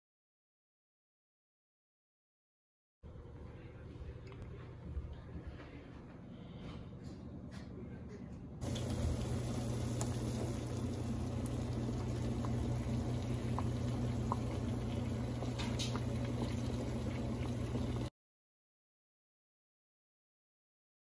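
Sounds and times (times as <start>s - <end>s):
low hum: 3.1s - 18.1s
water boiling in pot: 8.6s - 18.1s.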